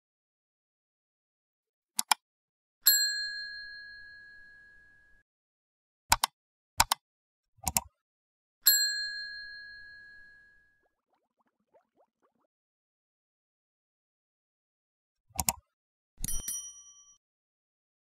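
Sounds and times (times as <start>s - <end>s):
double mouse clicks: 2.0s - 2.2s, 6.1s - 7.0s, 7.6s - 7.9s, 15.4s - 16.4s
bright bell dings: 2.8s - 5.2s, 8.6s - 10.7s, 16.3s - 17.2s.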